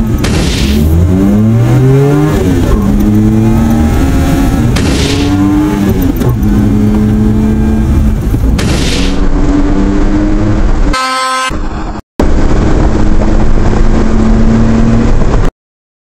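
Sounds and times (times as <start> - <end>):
truck engine revving: 0.0 - 10.9.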